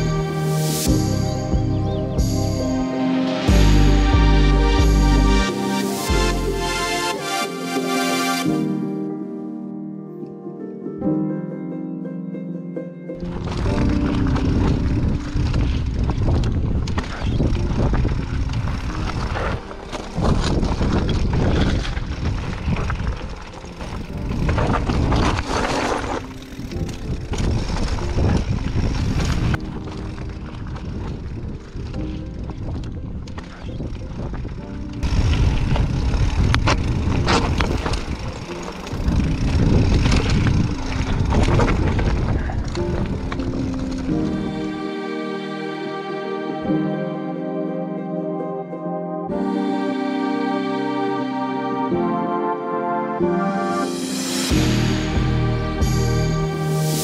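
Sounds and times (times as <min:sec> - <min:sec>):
bike rattling over stones: 0:13.2 - 0:44.4
wind rumbling on microphone: 0:13.2 - 0:44.6.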